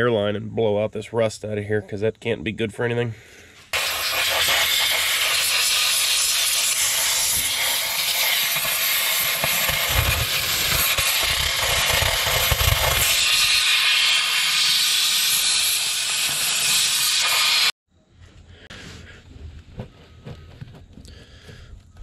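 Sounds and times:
air blow gun hissing: 3.7 - 17.8.

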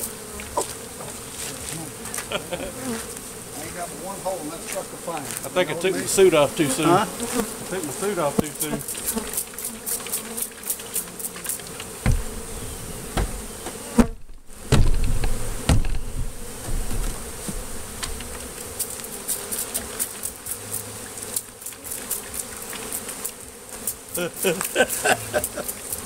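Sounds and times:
bees buzzing: 0.0 - 26.0
thumps on hive box: 7.2 - 23.4.

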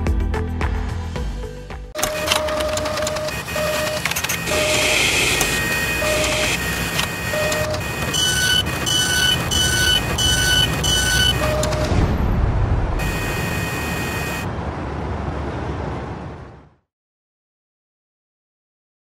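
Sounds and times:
machine whirring and clattering: 2.0 - 12.0
mechanical clicks: 2.0 - 12.0
short electronic beeps: 2.0 - 12.1, 13.0 - 14.5.

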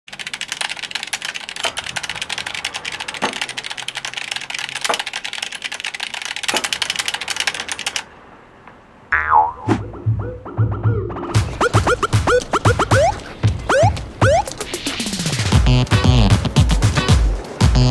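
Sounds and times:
fast typing on keyboard: 0.1 - 8.0
heavier keyboard click: 0.1 - 8.0.

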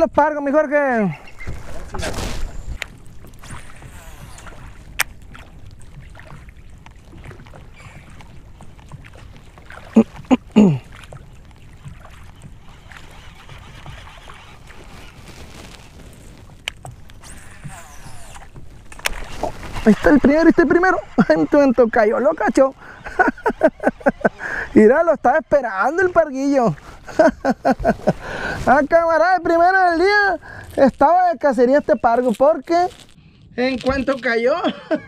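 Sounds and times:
water noise: 0.0 - 35.0
wind: 0.0 - 35.0.

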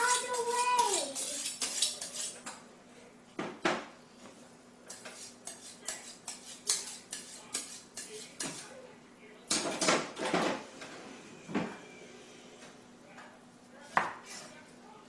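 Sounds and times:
knife scraping on sharpening steel: 0.0 - 2.5, 4.9 - 8.7.

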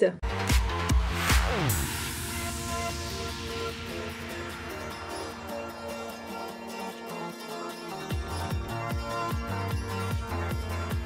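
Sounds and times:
background music with held tones: 0.2 - 11.0.

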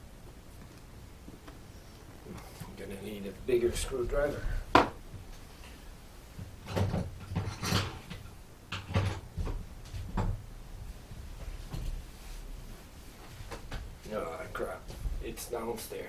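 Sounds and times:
objects knocking and clunking: 4.5 - 5.0, 6.4 - 10.5.

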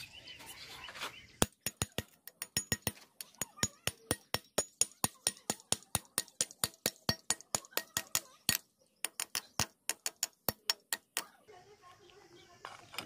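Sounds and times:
hammer striking steel plate: 1.4 - 11.4.

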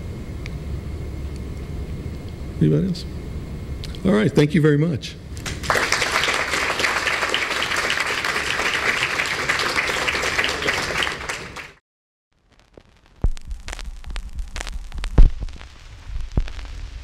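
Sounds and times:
audience applauding: 5.4 - 11.8
low thud: 13.2 - 16.6.

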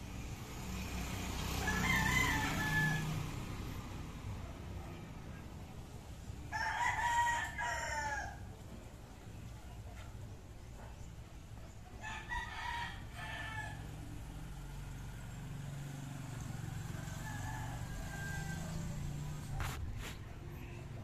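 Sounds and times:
rooster crowing: 1.5 - 3.4, 6.5 - 8.6, 12.0 - 14.3, 16.3 - 19.3.

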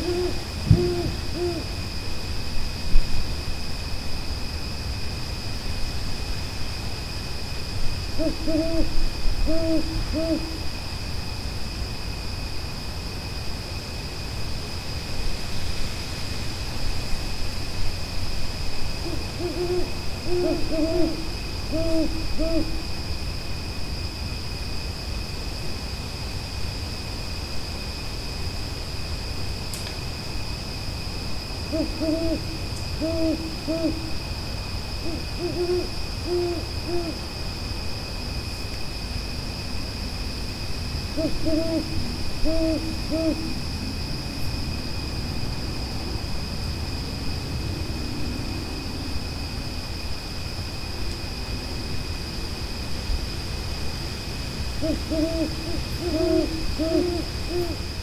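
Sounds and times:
owl hooting: 0.0 - 1.7, 8.2 - 10.6, 19.0 - 22.8, 31.7 - 34.2, 35.0 - 37.2, 41.1 - 43.6, 54.8 - 57.8.

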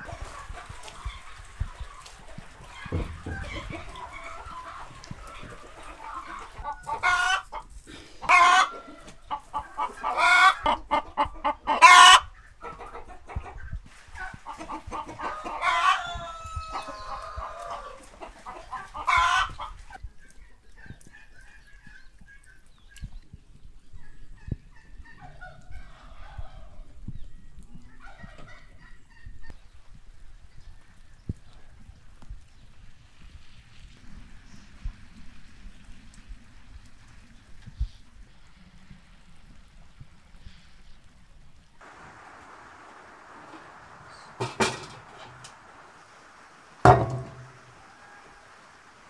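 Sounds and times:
chickens clucking: 0.0 - 32.0, 41.8 - 49.0
rooster crowing: 15.2 - 18.1, 46.8 - 49.0.

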